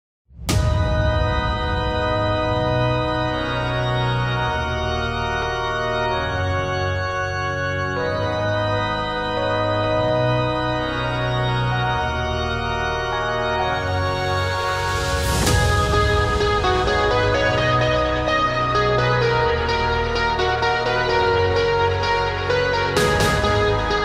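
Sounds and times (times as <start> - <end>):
organ-like held chords: 1.2 - 15.2.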